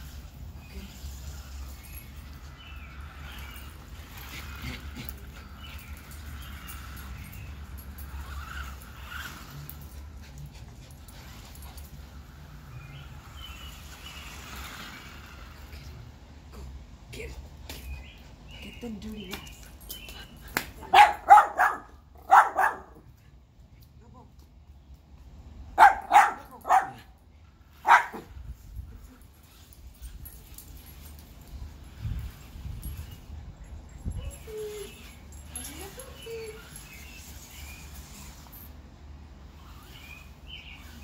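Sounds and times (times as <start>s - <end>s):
dog barking: 20.9s - 23.0s, 25.8s - 27.1s, 27.8s - 28.3s
dogs whimpering and whining: 32.8s - 38.6s.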